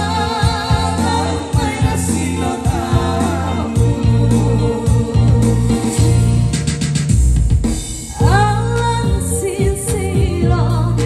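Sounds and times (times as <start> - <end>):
amplified singing: 0.0 - 6.5
live band music: 0.0 - 11.0
drum strikes: 0.4 - 10.7.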